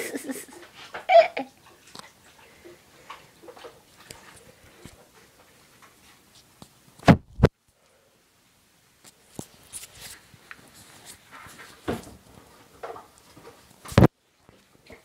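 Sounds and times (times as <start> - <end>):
small knocks and rustles: 0.6 - 7.1, 9.0 - 15.0.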